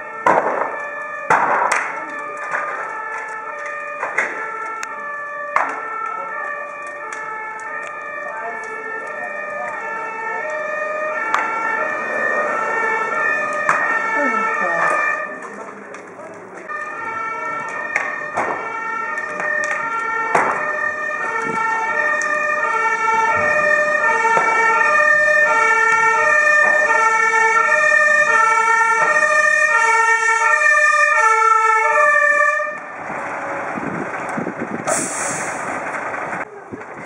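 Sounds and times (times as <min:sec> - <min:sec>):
two-tone siren: 0:00.0 - 0:15.6, 0:16.6 - 0:34.7
short hiss: 0:34.9 - 0:35.6.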